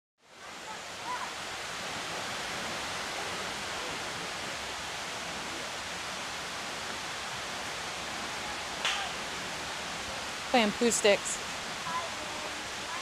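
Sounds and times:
stream rushing over rocks: 0.2 - 13.0.

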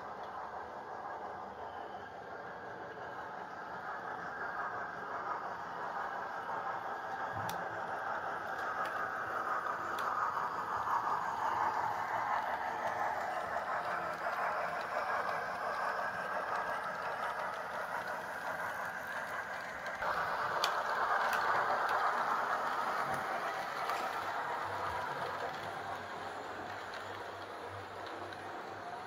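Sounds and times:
model train motors whirring: 0.0 - 29.0
faint clicks: 9.9 - 10.4.

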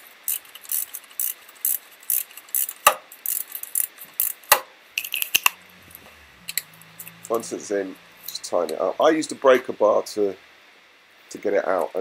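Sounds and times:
socket ratchet clicking: 0.2 - 5.6.

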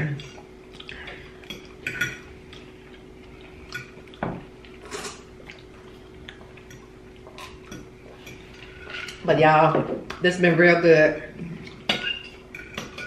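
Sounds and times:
faint steady hum: 0.0 - 13.0
forks clinking on plates: 1.4 - 2.3, 11.9 - 13.0.

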